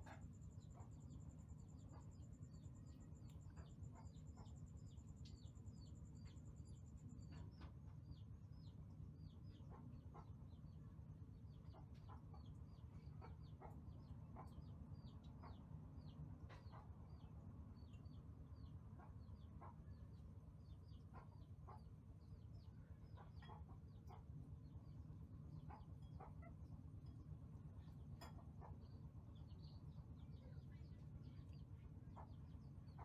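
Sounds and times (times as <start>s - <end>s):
low steady hum: 0.0s - 33.0s
faint high peeping calls: 27.8s - 33.0s.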